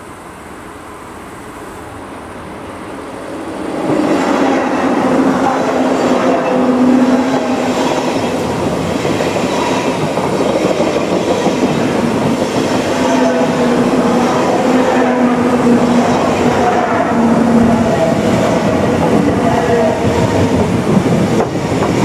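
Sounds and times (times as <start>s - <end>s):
electric train passing: 0.0s - 22.0s
wheels rushing on rail: 0.0s - 22.0s.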